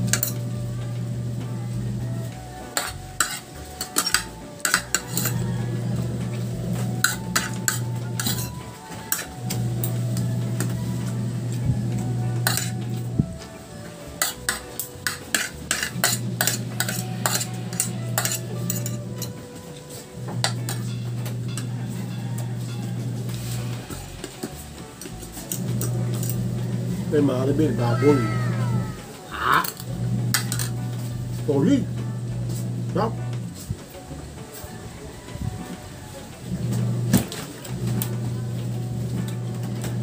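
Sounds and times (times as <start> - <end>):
cutlery clinking on a ceramic plate: 2.8 - 5.4, 7.0 - 9.3, 12.4 - 12.8, 14.2 - 19.4.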